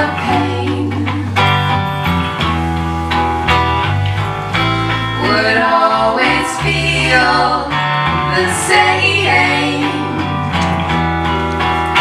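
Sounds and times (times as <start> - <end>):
women singing: 0.0 - 1.8, 5.0 - 10.6
electric bass: 0.0 - 12.0
electric guitar: 0.0 - 12.0.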